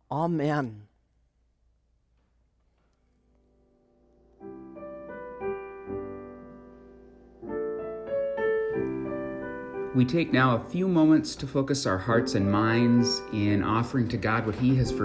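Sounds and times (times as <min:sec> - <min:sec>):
piano playing slow chords: 0:03.4 - 0:15.0.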